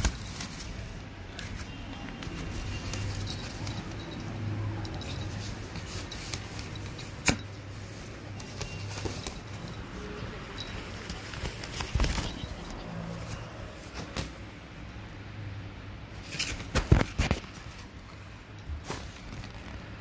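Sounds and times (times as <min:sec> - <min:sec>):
nylon tunnel rustling: 0:00.0 - 0:04.1.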